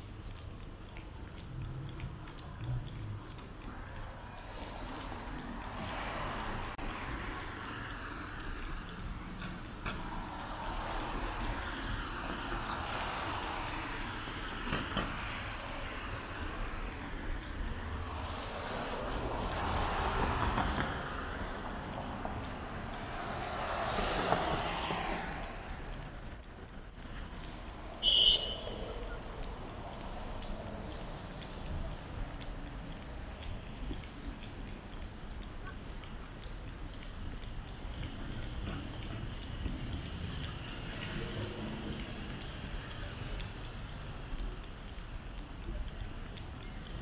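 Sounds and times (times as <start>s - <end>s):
cars and trucks passing: 0.0s - 47.0s.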